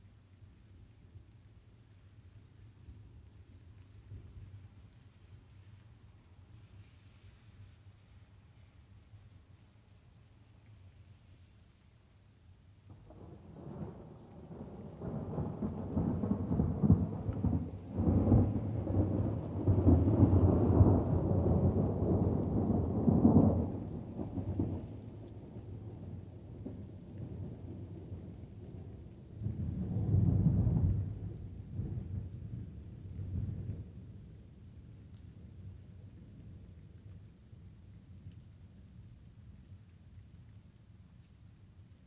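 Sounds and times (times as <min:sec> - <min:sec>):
light rain: 0:00.0 - 0:42.0
rolling thunder: 0:13.2 - 0:25.0.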